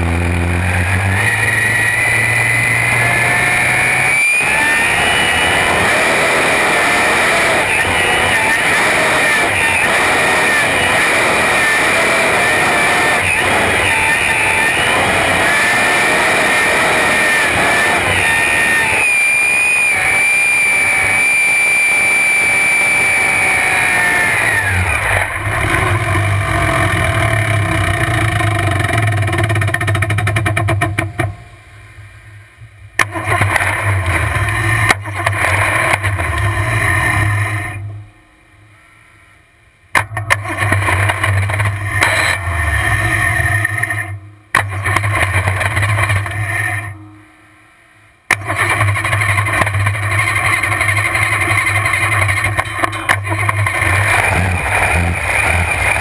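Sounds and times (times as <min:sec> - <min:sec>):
engine dying and refiring: 0:00.0 - 0:38.1, 0:39.9 - 0:47.1, 0:48.3 - 0:56.0
boat engine blower whine: 0:00.0 - 0:39.4, 0:40.4 - 0:56.0
boat engine lumpy idle: 0:48.3 - 0:54.2.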